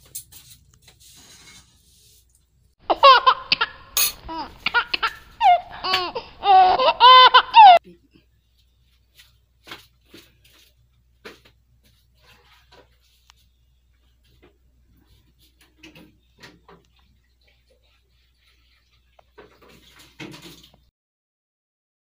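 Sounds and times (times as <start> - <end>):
high-pitched laughter: 2.9 - 7.8.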